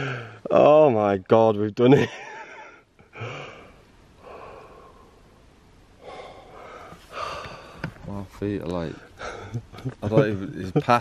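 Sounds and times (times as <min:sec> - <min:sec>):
man gasping breathily: 0:06.0 - 0:07.9.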